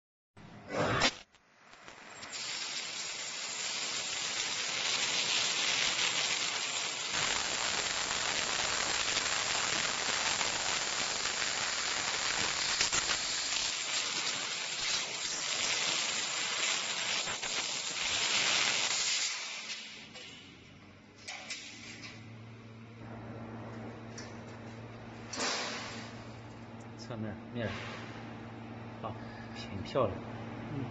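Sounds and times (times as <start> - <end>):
laser cutter gas hiss: 0.7 - 20.3.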